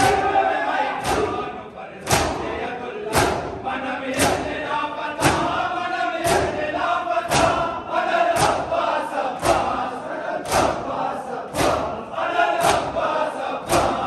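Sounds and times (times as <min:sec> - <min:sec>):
crowd chanting: 0:00.0 - 0:14.0
hands slapping chests: 0:01.0 - 0:01.4, 0:02.0 - 0:02.5, 0:03.1 - 0:04.6, 0:05.2 - 0:05.6, 0:06.2 - 0:06.7, 0:07.3 - 0:07.7, 0:08.4 - 0:08.8, 0:09.4 - 0:09.8, 0:10.4 - 0:12.0, 0:12.6 - 0:14.0.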